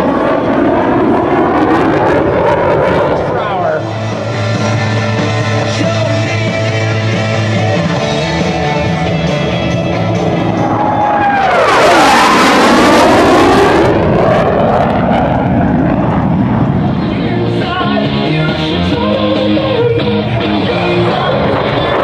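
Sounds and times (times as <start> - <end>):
fighter jet engine roar passing: 0.0 - 22.0
background music: 3.8 - 11.2, 17.0 - 22.0.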